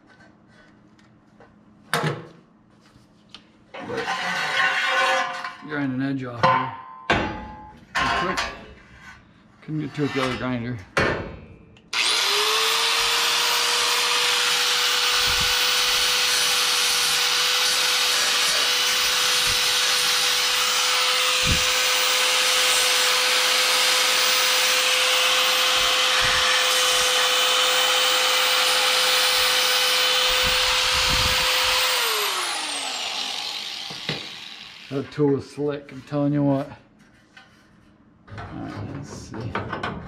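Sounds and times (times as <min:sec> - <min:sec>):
belt file grinding metal: 0:12.0 - 0:35.3
power file spinning down: 0:25.3 - 0:34.9.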